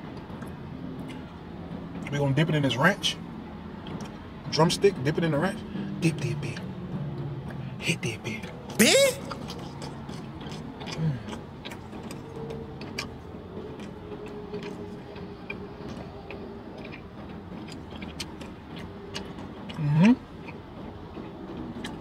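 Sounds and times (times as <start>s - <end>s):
wet chewing smacks: 8.3s - 20.6s
person humming mm: 8.8s - 10.2s.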